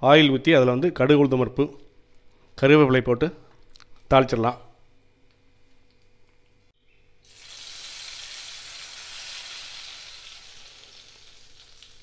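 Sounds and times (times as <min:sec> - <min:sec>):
hot oil sizzling in gravy: 0:07.2 - 0:12.0.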